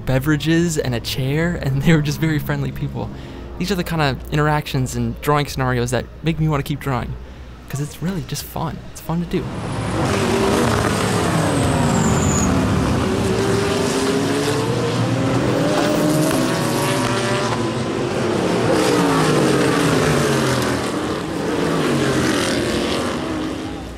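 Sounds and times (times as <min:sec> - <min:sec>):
race cars passing at speed: 0:09.4 - 0:23.9.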